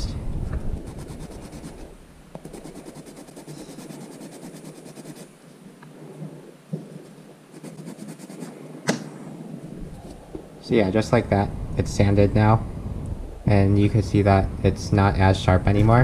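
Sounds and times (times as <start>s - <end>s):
nail file rasping on plastic: 0.8s - 1.8s, 2.4s - 5.3s, 7.6s - 8.5s.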